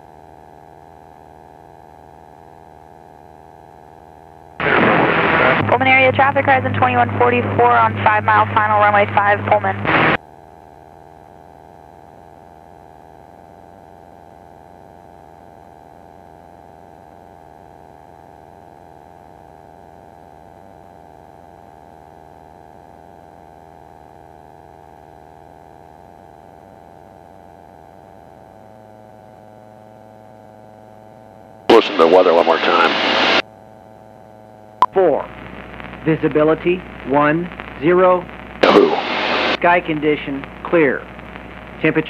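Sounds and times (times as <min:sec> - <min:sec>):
light aircraft engine drone: 0:31.7 - 0:33.8.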